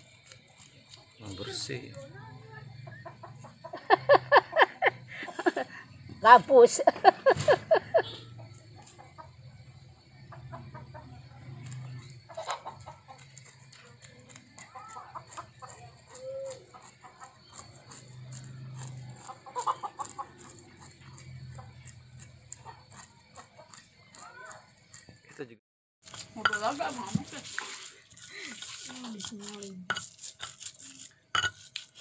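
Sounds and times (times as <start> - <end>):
knife scraping fish scales: 0.0 - 1.2, 26.0 - 32.0
chickens clucking: 2.7 - 5.6, 6.2 - 25.2.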